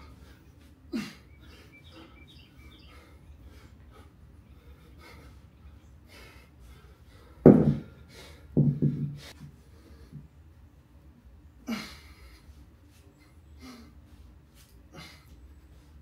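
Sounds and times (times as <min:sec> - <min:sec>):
kettlebell thud on concrete: 0:07.4 - 0:07.9, 0:08.5 - 0:09.2
kettlebell knocking as it settles: 0:07.5 - 0:07.8.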